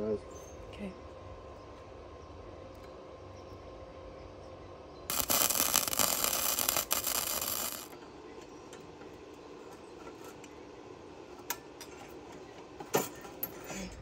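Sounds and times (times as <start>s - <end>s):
welding arc crackle: 5.1s - 8.0s.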